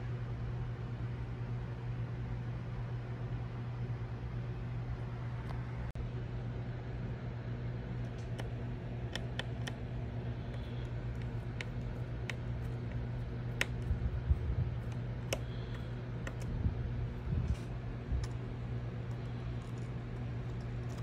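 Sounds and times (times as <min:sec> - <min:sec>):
steady low hum: 0:00.0 - 0:21.0
fingers tapping laptop parts: 0:08.2 - 0:16.5.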